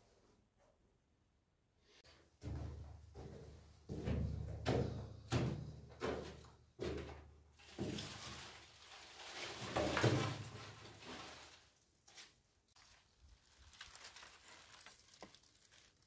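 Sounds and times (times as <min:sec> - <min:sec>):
echoing footsteps on stone steps: 0:02.4 - 0:07.3
rustling and scraping through branches: 0:07.6 - 0:16.0.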